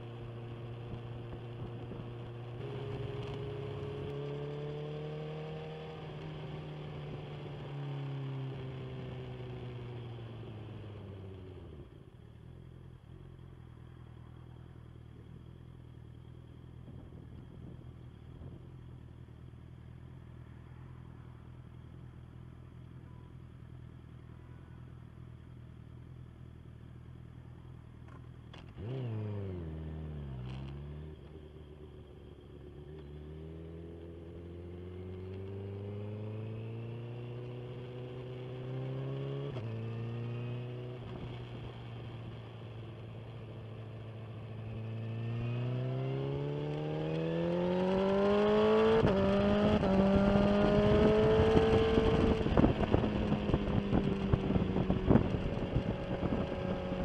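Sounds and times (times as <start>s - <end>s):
motorcycle engine: 0.0s - 57.0s.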